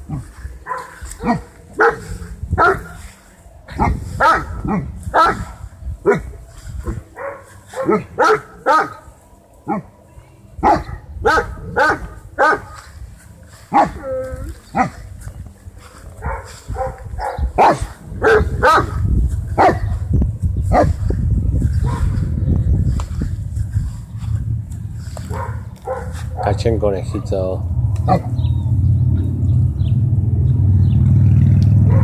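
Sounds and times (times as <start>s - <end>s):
dogs barking: 0.0s - 10.0s, 10.6s - 15.3s, 15.9s - 20.1s, 20.7s - 22.4s, 25.0s - 29.3s, 31.8s - 32.0s.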